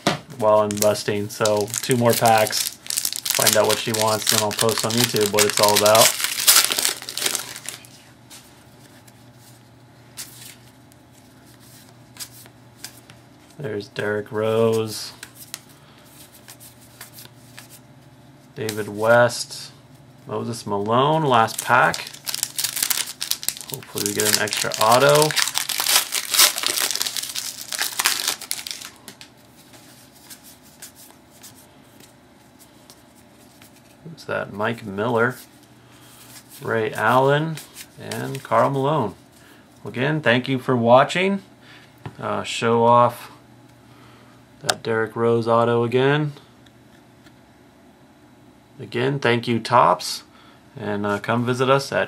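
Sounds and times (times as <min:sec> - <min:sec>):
cards rustling: 0:00.4 - 0:13.6, 0:21.3 - 0:34.0, 0:35.2 - 0:38.8
card pack wrapper crinkling: 0:00.6 - 0:08.0, 0:21.4 - 0:31.5.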